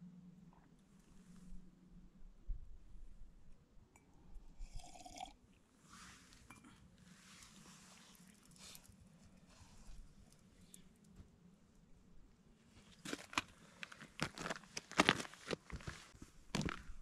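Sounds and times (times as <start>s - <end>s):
low steady hum: 0.0s - 17.0s
faint rustles and handling noises: 5.8s - 17.0s.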